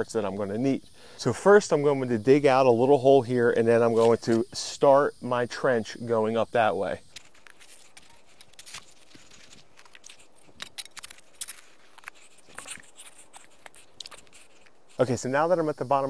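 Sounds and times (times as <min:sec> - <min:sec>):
shovel crunching and scraping soil: 0:07.1 - 0:15.1.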